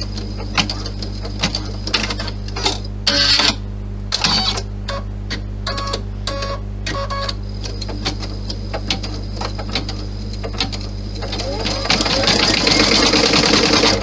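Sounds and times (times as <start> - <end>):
steady hum: 0.0 - 14.0
embroidery machine stitching: 8.9 - 14.0.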